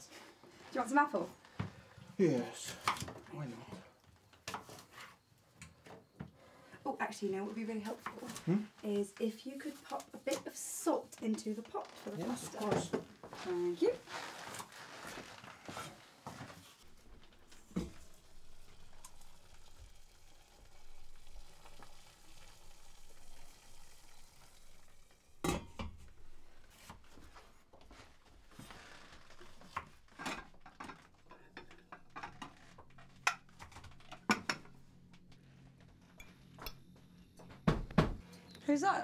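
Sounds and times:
pots and pans clattering: 25.4s - 26.5s, 29.7s - 34.8s
knocks: 37.4s - 38.2s.

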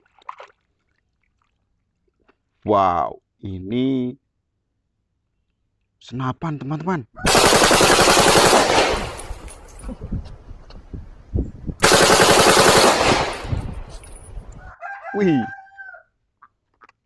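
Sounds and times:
rifle automatic fire bursts: 7.2s - 9.3s, 11.8s - 13.6s
gunfire echoes: 7.3s - 9.4s, 11.8s - 13.7s.

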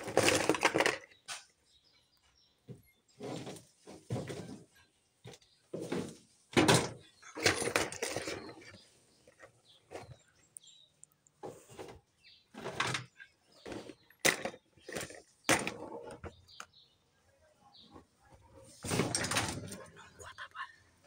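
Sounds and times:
plastic toys clattering: 0.0s - 1.6s, 3.2s - 10.8s, 11.4s - 16.8s, 18.0s - 19.9s.

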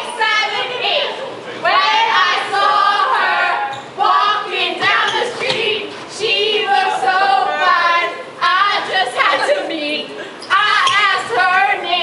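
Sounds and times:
woman singing unaccompanied: 1.7s - 12.0s.

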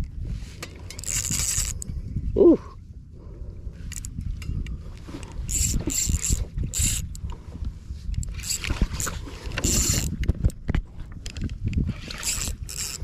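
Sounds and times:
wind and water rumble: 0.0s - 13.0s
fishing reel whirring: 0.9s - 1.9s, 3.9s - 4.2s, 4.8s - 7.4s, 8.2s - 10.2s, 11.9s - 13.0s.

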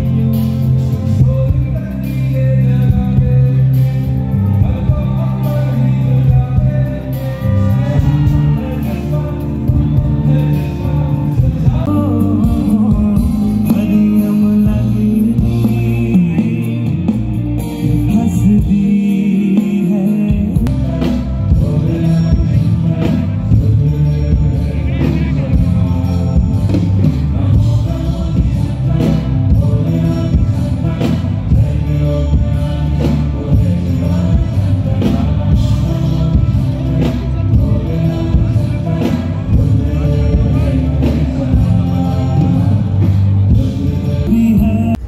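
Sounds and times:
drums: 0.0s - 45.0s
guitars: 0.0s - 45.0s
man singing into a microphone: 0.0s - 45.0s.

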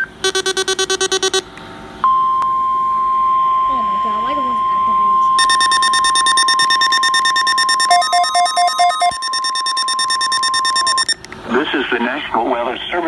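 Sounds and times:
alert radio rapid beeping: 0.0s - 1.4s, 5.4s - 11.3s
lower beeps: 0.0s - 11.3s
steady alarm tone: 0.2s - 1.5s, 2.1s - 11.3s.

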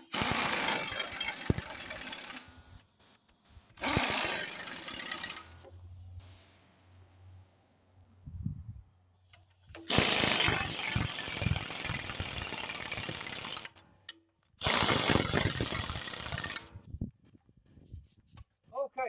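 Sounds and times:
air impact wrench hammering: 0.0s - 2.5s, 3.8s - 5.7s, 9.7s - 13.8s, 14.6s - 16.7s.

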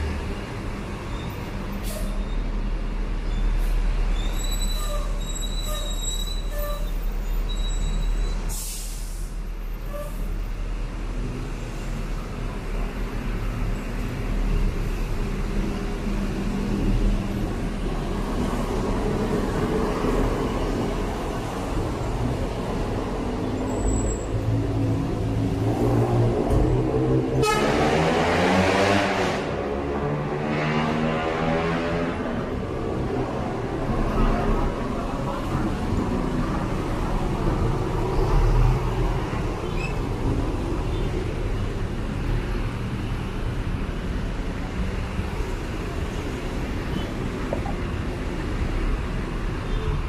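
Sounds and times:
road traffic rumble: 0.0s - 50.0s
high squeal: 4.1s - 8.5s.

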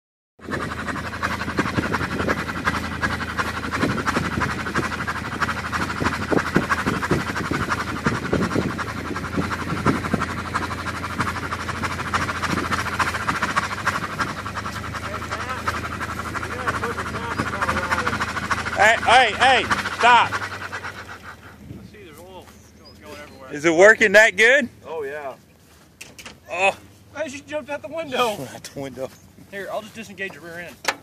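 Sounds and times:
tractor engine rhythmic clatter: 0.4s - 21.6s, 29.6s - 31.0s.

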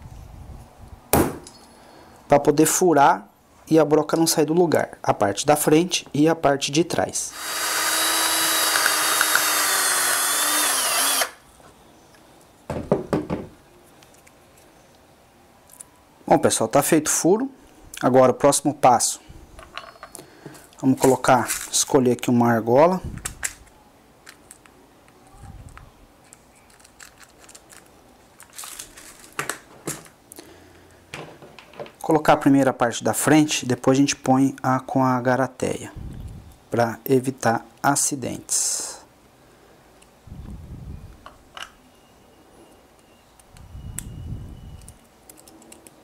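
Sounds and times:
cordless drill boring through metal: 7.3s - 11.4s.

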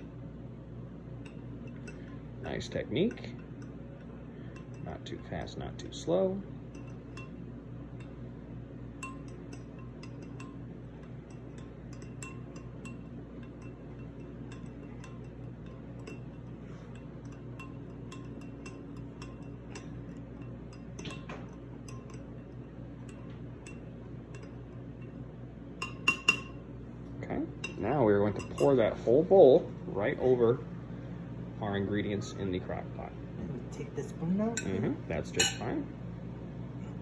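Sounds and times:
low steady hum: 0.0s - 37.0s
spoon clinking against glass bowl: 1.2s - 5.4s, 6.7s - 7.4s, 9.0s - 25.2s, 25.8s - 26.6s, 27.6s - 28.8s, 35.4s - 35.7s.

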